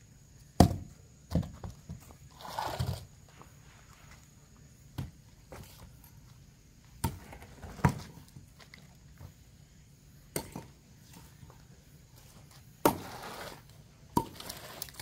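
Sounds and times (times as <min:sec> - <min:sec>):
axe chopping log: 0:00.6 - 0:01.5, 0:12.8 - 0:13.2.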